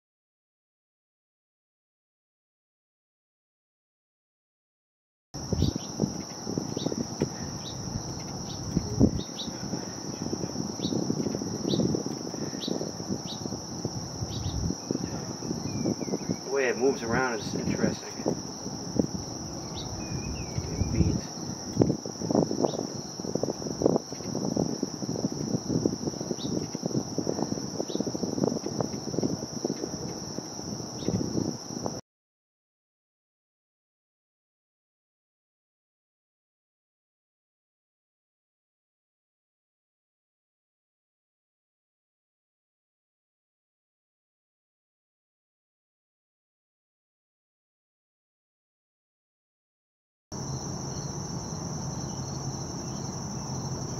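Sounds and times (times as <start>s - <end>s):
low rumbling bumps: 5.4s - 16.2s
crickets trilling: 5.4s - 32.0s, 50.3s - 53.9s
insect chorus: 5.4s - 32.0s, 50.3s - 53.9s.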